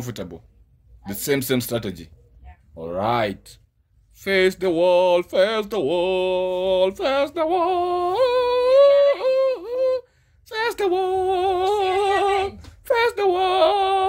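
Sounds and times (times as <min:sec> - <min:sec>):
person singing wordless tune: 0:04.2 - 0:14.0.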